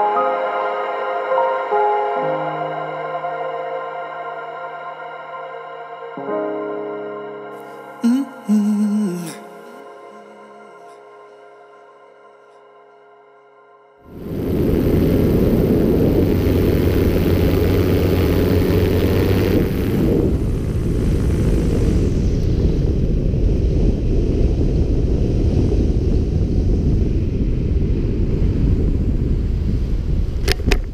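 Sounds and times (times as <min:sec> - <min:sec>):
wind rushing over microphone: 0:14.1 - 0:30.9.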